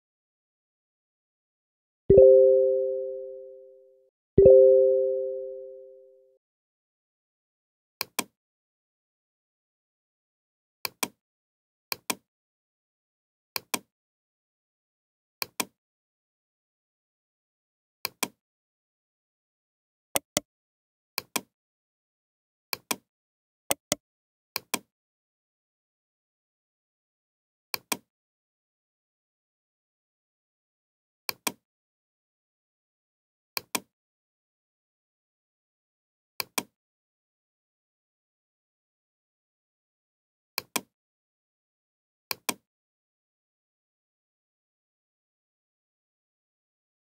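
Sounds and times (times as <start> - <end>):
computer mouse button clicking: 20.2 - 20.4.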